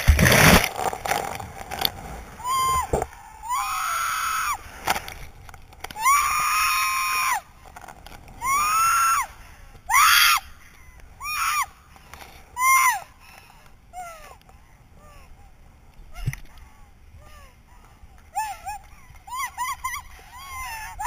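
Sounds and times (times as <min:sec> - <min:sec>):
woman screaming: 0:02.4 - 0:04.6, 0:06.0 - 0:07.4, 0:08.4 - 0:09.3.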